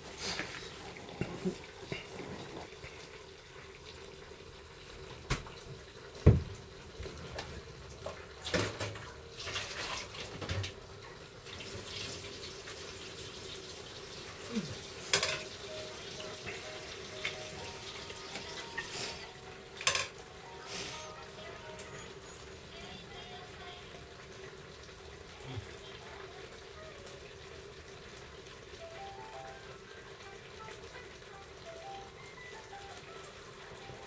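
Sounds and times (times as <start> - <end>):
watery hiss from cooking pot: 0.0 - 7.3, 11.4 - 19.5, 20.4 - 30.4.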